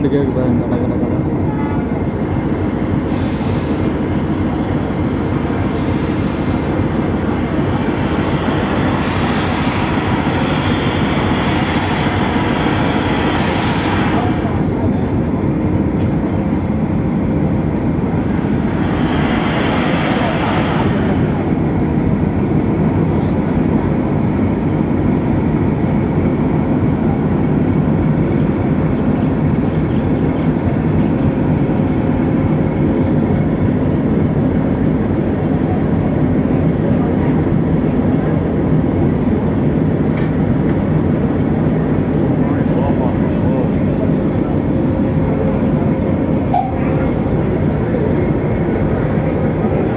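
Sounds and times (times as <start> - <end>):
steam locomotive rumble and hiss: 0.0 - 49.9
sharp steam hissing bursts: 3.0 - 14.8, 18.3 - 21.8.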